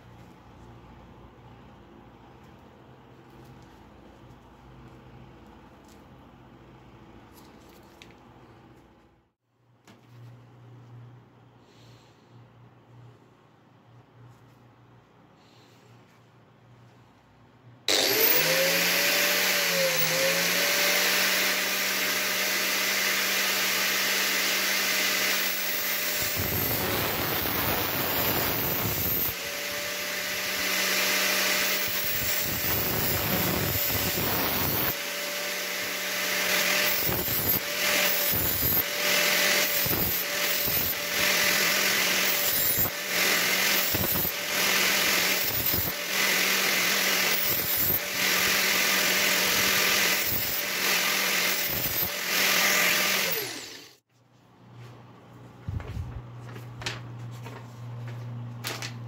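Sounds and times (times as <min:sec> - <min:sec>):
angle grinder whining: 0:17.9 - 0:54.0.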